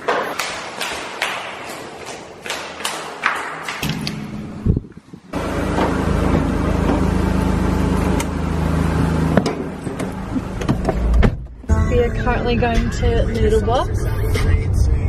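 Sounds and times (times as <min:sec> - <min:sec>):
car engine idling: 0:03.9 - 0:15.0.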